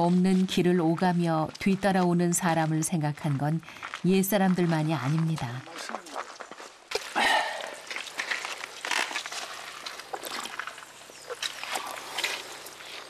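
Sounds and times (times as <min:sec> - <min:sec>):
water splashing and trickling: 0:04.7 - 0:13.0
dipper scooping water: 0:06.9 - 0:13.0.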